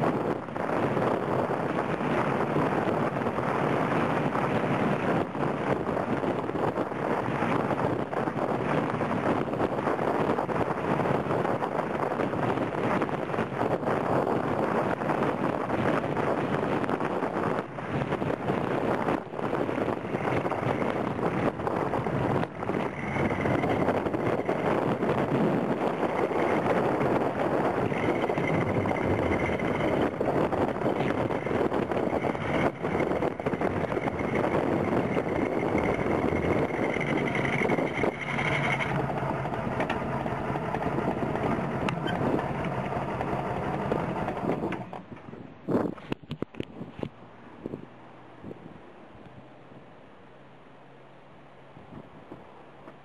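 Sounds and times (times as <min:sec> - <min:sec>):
vehicle road and wind noise: 0:00.0 - 0:53.0.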